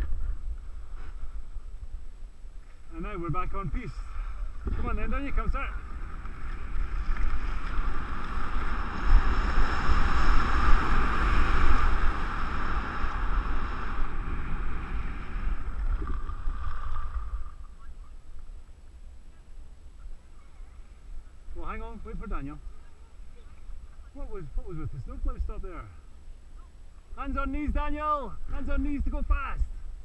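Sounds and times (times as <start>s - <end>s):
wind buffeting microphone: 3.3s - 18.6s.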